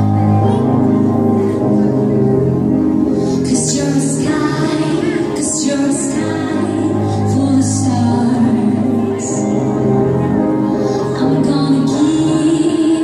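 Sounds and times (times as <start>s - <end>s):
stage show music: 0.0s - 13.0s
woman singing: 3.4s - 9.7s, 11.0s - 13.0s.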